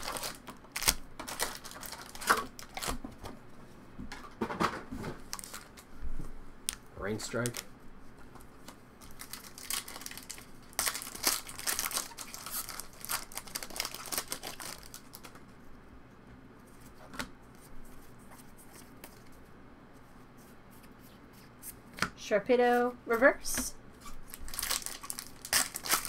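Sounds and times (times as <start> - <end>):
foil pack crinkling: 0.0 - 3.0, 5.2 - 5.9, 7.1 - 7.7, 9.0 - 15.4, 24.0 - 26.0.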